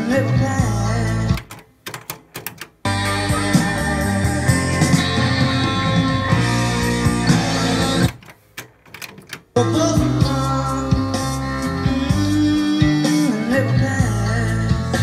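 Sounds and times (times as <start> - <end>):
rock music with guitar: 2.9 - 8.2, 9.6 - 15.0.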